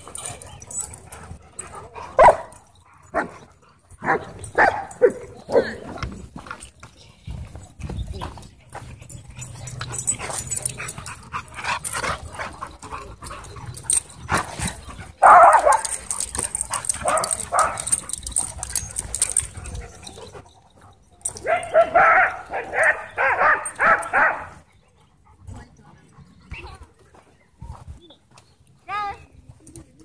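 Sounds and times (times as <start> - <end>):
dogs barking and yipping: 0.0 - 6.5, 8.3 - 25.6.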